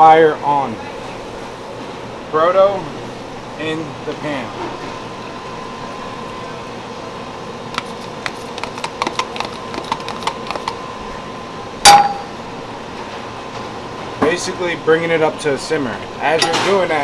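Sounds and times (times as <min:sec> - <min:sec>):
steady kitchen hiss: 0:00.0 - 0:17.0
sharp metallic clink: 0:11.9 - 0:12.3.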